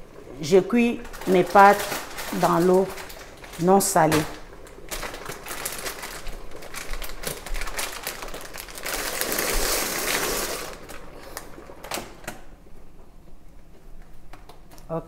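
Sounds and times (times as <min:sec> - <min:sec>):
water boiling and bubbling: 0:00.0 - 0:13.8
dry pasta pouring into water: 0:01.0 - 0:11.8.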